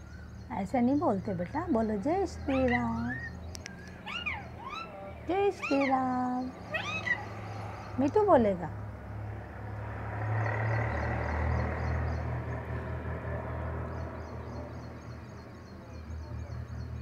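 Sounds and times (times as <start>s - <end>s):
motor vehicle passing: 0.0s - 17.0s
faint high chirping: 1.7s - 8.0s.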